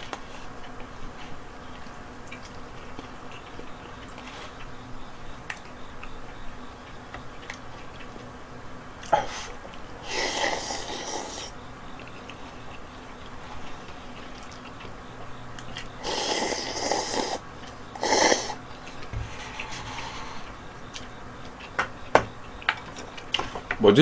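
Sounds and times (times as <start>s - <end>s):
person slurping noodles: 16.0s - 17.4s, 18.0s - 18.6s.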